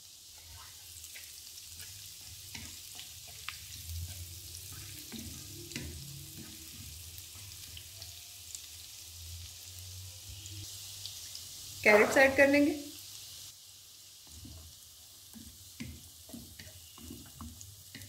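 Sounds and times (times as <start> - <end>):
food sizzling in oil: 0.0 - 18.0
spatula scraping a pan: 0.3 - 7.8.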